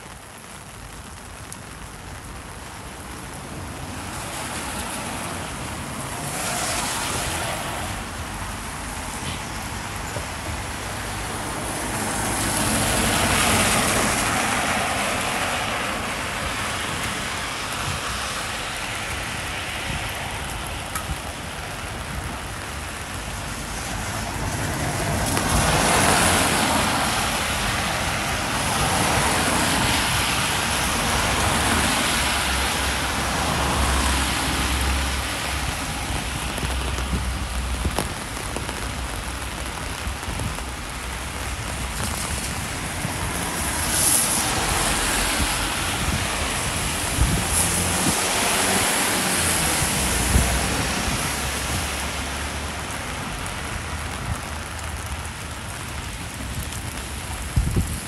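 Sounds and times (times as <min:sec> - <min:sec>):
cars passing on wet road: 0:00.0 - 0:58.0
steady rain hiss: 0:00.0 - 0:58.0.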